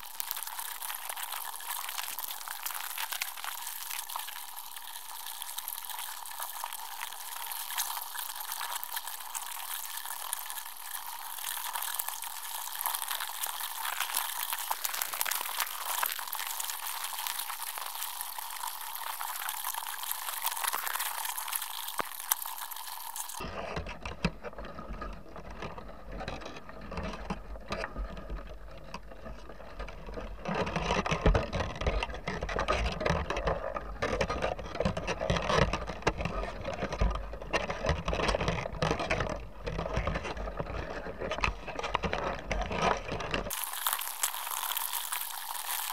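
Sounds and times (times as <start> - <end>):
high crackling underwater hiss: 0.0 - 23.4, 43.5 - 45.9.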